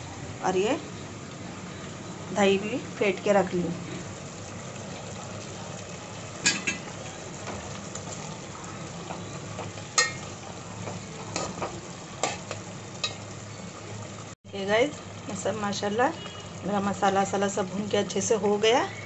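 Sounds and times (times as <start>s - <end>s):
chicken sizzling in oil: 0.0s - 19.0s.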